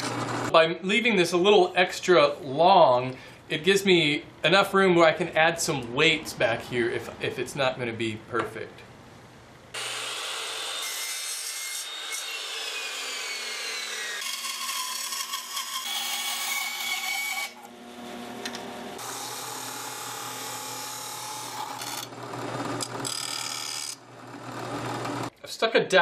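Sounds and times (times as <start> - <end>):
band saw cutting bamboo: 9.8 - 25.3.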